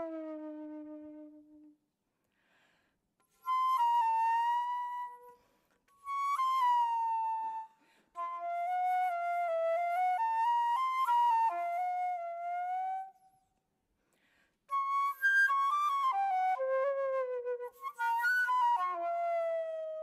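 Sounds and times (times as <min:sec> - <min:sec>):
solo flute: 0:00.0 - 0:01.8, 0:03.2 - 0:13.7, 0:14.7 - 0:20.0
breaths: 0:02.1 - 0:03.2, 0:05.3 - 0:06.0, 0:07.7 - 0:08.2, 0:13.9 - 0:14.7.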